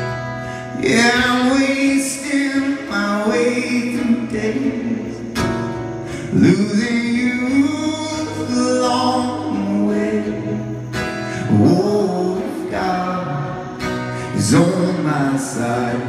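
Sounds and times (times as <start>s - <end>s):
strummed acoustic guitar: 0.0s - 16.0s.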